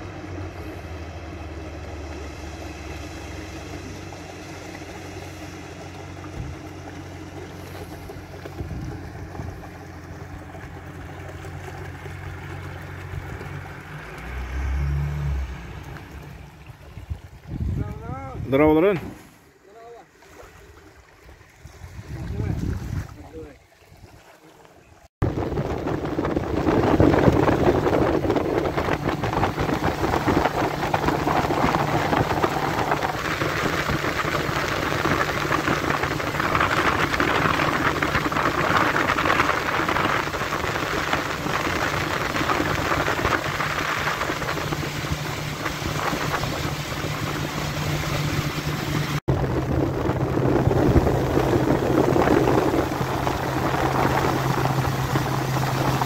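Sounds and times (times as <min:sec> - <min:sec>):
motorboat engine drone: 0:00.0 - 0:19.6, 0:24.9 - 0:56.0
water rushing along hull: 0:00.0 - 0:56.0
wind buffeting microphone: 0:07.5 - 0:11.0, 0:14.3 - 0:19.2, 0:21.5 - 0:23.5, 0:25.2 - 0:56.0.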